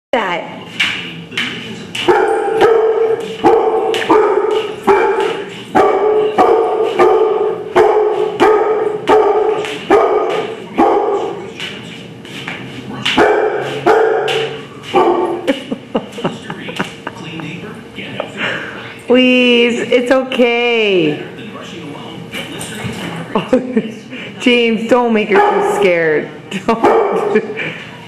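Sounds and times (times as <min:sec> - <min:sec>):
dog barking: 0:02.0 - 0:11.5, 0:13.2 - 0:15.5, 0:25.3 - 0:26.0, 0:26.8 - 0:27.4.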